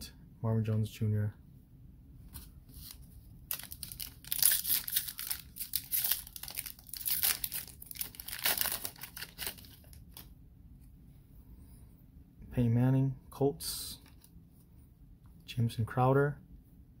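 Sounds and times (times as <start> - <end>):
foil wrapper crinkling and tearing: 3.5 - 10.3.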